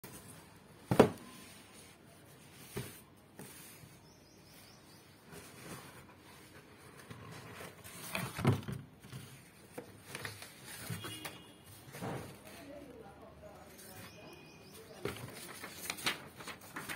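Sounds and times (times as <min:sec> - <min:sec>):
paper rustling: 0:05.2 - 0:16.9.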